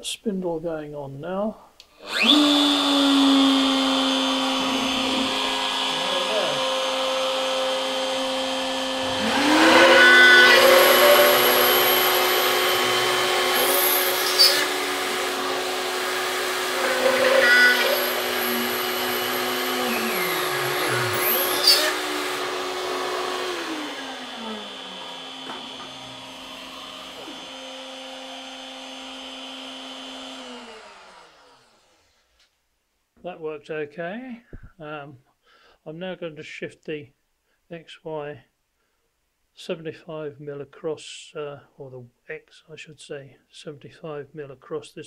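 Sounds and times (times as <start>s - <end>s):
router spindle whine: 2.0s - 32.0s
vacuum cleaner running: 2.0s - 32.1s
drill bit squealing: 9.0s - 22.5s.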